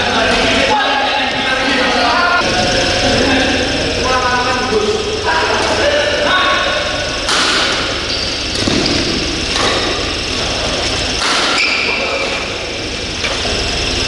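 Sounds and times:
low hall hum: 0:00.0 - 0:14.0
racket hitting shuttlecock: 0:07.3 - 0:10.2, 0:10.8 - 0:12.5
shoes squeaking on court: 0:07.8 - 0:09.8, 0:10.7 - 0:12.4.

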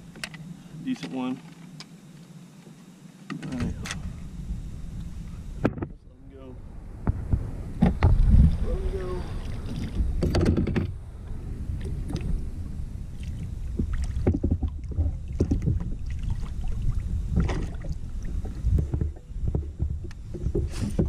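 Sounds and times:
low steady rumble: 0:00.0 - 0:21.0
knocks and rattles on kayak: 0:05.6 - 0:06.0, 0:07.0 - 0:08.8, 0:09.4 - 0:11.0, 0:13.7 - 0:16.1, 0:17.3 - 0:21.0
small water splashes: 0:13.1 - 0:18.5.

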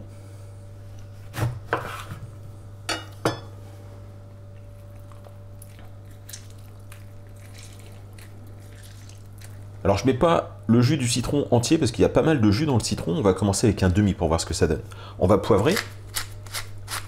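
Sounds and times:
lemon squelching: 0:04.9 - 0:09.8.

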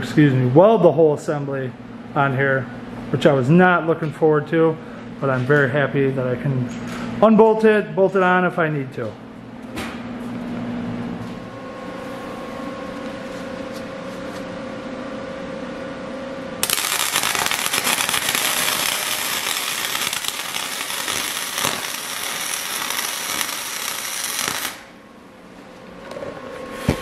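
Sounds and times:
background hum: 0:00.0 - 0:27.0
electric arc welding crackle: 0:16.6 - 0:25.0.

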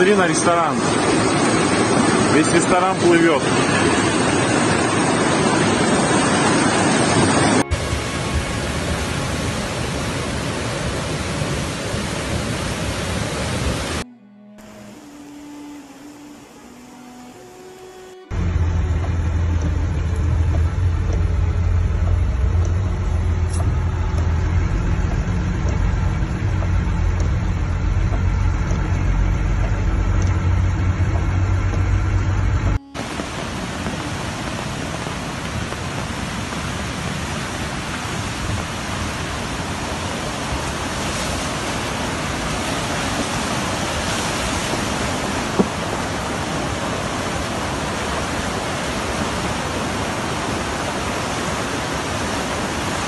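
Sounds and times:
heavy rain hiss: 0:00.0 - 0:14.0, 0:14.6 - 0:53.0
rushing floodwater: 0:00.0 - 0:14.0, 0:18.3 - 0:53.0
car rumble from inside cabin: 0:18.3 - 0:34.2.

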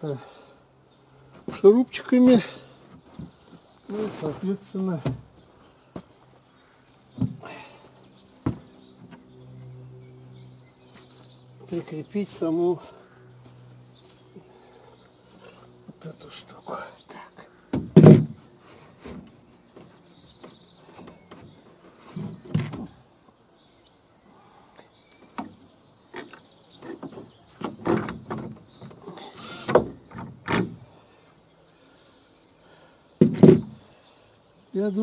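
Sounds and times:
wood and tool handling knocks: 0:17.7 - 0:18.4, 0:26.2 - 0:29.0, 0:33.2 - 0:33.8
cordless drill screwing into wood: 0:29.4 - 0:30.7.

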